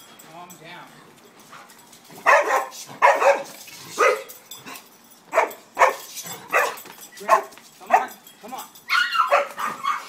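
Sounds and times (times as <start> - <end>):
dog barking: 2.2 - 4.3, 5.3 - 8.1, 8.9 - 10.0.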